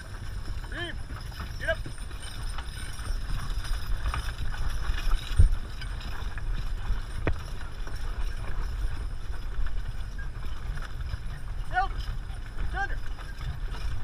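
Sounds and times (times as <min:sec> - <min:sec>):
harness and wagon rattle: 0:00.0 - 0:14.0
horse hoofbeats on dirt: 0:00.0 - 0:14.0.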